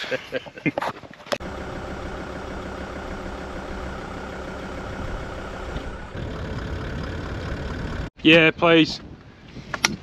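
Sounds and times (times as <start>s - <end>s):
vehicle engine running: 1.4s - 8.1s.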